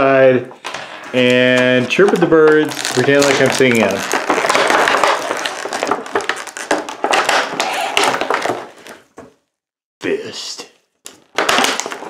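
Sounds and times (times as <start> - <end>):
plastic bag crinkling: 0.6 - 9.0.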